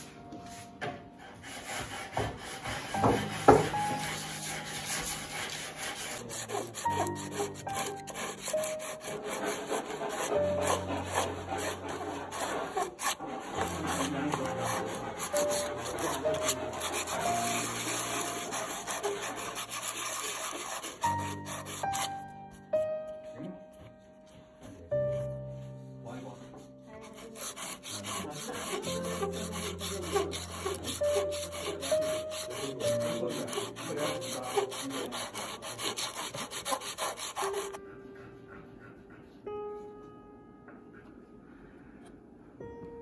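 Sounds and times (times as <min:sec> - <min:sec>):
soft background music: 0:00.0 - 0:43.0
sanding block rasping on wood: 0:01.2 - 0:22.2, 0:26.8 - 0:37.8.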